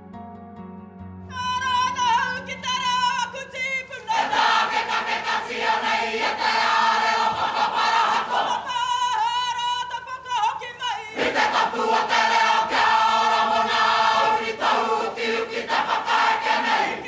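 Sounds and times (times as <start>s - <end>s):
person singing lead line: 1.3s - 4.6s
group singing loudly together: 4.0s - 9.2s, 11.0s - 17.0s.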